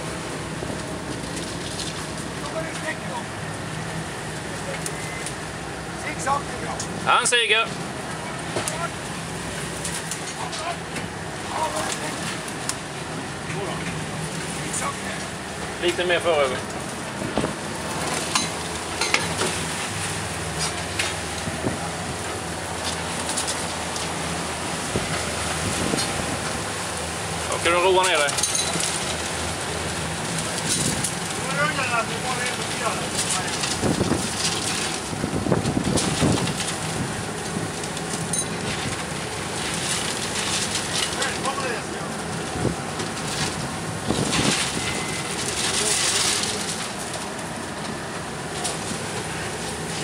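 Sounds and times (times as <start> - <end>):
boat engine humming low: 0.0 - 50.0
churning wake water: 0.0 - 50.0
rough sea: 0.0 - 50.0
wind: 0.0 - 50.0
wind buffeting microphone: 24.9 - 26.8, 33.8 - 34.4, 35.0 - 37.8.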